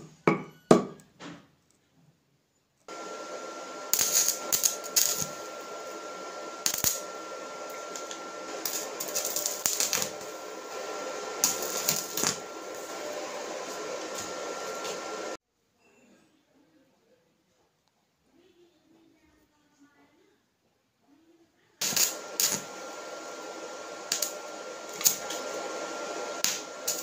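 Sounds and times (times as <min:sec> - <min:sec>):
arc welding hiss and crackle: 0:02.9 - 0:15.4, 0:21.8 - 0:27.0
faint high whine: 0:02.9 - 0:15.4, 0:21.8 - 0:27.0.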